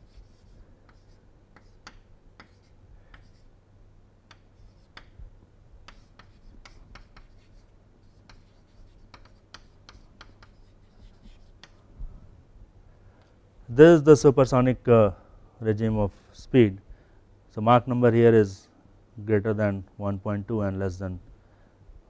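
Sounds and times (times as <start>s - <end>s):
chalk writing on chalkboard: 0.0s - 3.5s, 4.3s - 5.2s, 5.8s - 11.8s.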